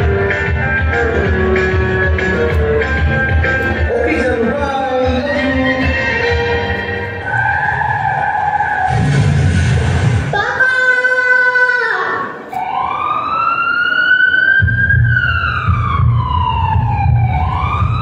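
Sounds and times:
siren wail: 5.7s - 9.5s, 12.4s - 18.0s.

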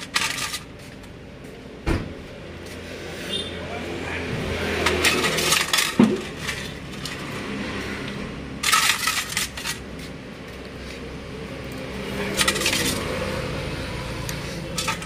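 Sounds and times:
small metal parts clinking: 0.0s - 0.7s, 4.8s - 7.4s, 8.6s - 9.9s, 12.1s - 13.2s, 14.7s - 15.0s.

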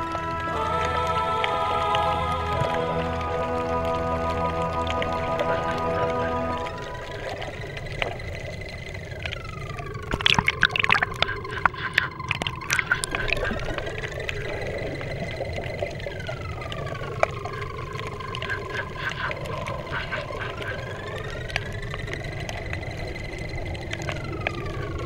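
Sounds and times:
faint gliding tones: 0.0s - 25.0s
underwater water noise: 0.0s - 25.0s
sharp clicks and pops: 4.4s - 25.0s.

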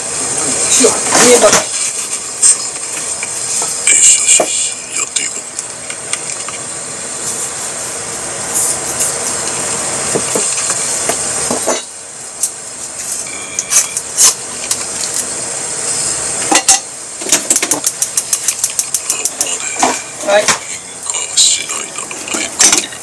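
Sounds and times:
utensils and cookware clinking: 16.5s - 20.7s, 21.7s - 23.0s.

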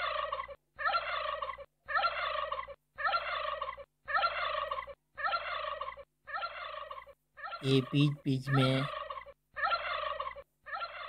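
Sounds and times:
flamingos honking: 7.6s - 11.0s.

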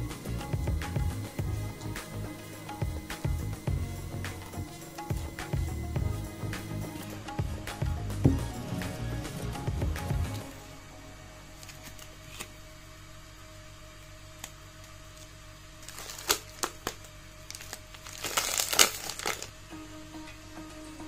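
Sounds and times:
wrapper crinkling and crackling: 15.2s - 19.6s.

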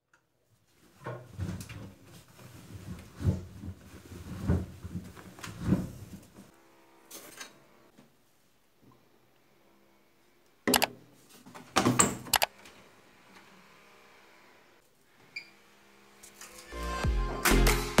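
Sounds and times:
fabric rustling: 0.7s - 6.5s.

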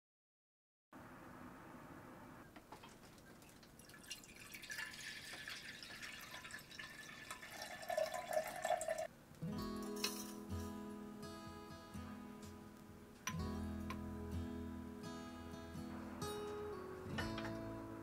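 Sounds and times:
water pouring into glass: 2.8s - 9.1s
ringing tone from filling glass: 4.1s - 9.1s.

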